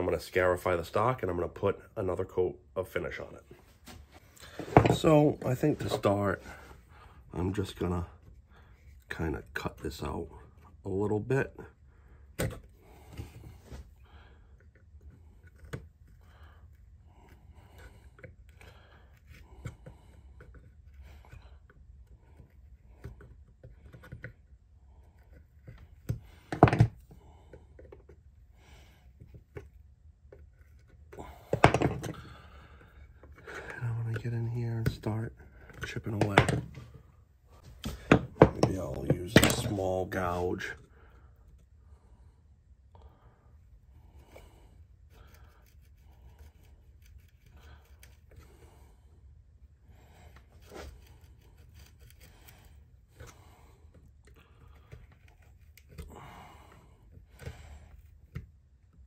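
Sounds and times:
cutting tool scraping wood: 0:45.0 - 0:48.7, 0:50.2 - 0:53.4.

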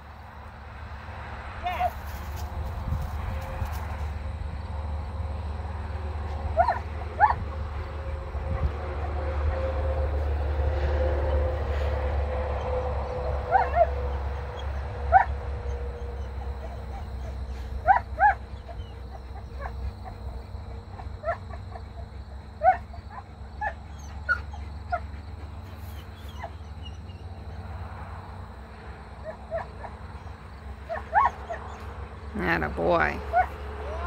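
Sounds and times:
dog whining and yipping: 0:06.6 - 0:07.4, 0:13.5 - 0:27.7, 0:29.2 - 0:31.9.

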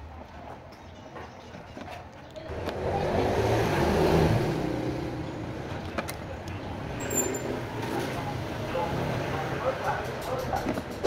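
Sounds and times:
vehicle engine passing by: 0:02.5 - 0:05.9.

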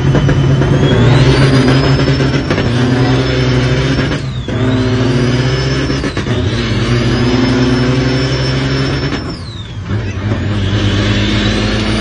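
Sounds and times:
high jet-like whistle: 0:00.0 - 0:05.4
diesel truck engine pulling: 0:00.0 - 0:12.0.

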